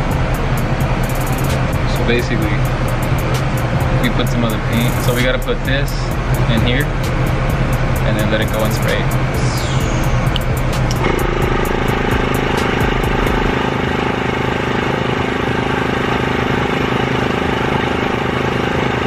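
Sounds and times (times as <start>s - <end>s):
compressor motor humming: 0.0s - 19.0s.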